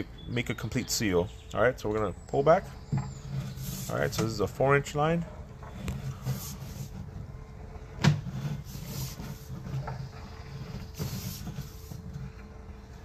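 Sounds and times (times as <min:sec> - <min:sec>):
cable rubbing and creaking: 0:02.4 - 0:13.0
scraping bursts: 0:02.9 - 0:04.6, 0:05.5 - 0:13.0.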